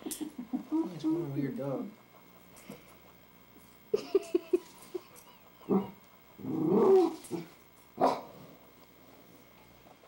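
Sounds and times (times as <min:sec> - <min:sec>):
dog barking: 0:08.0 - 0:08.4.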